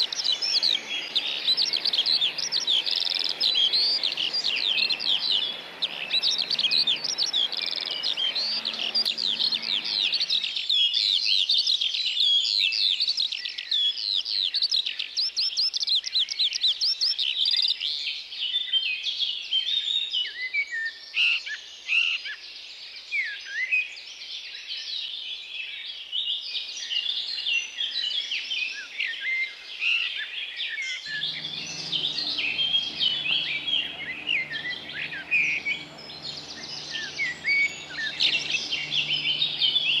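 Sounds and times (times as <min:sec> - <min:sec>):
low steady background noise: 0:00.0 - 0:10.7, 0:31.1 - 0:40.0
songbirds chirping and trilling: 0:00.0 - 0:10.9, 0:31.0 - 0:40.0.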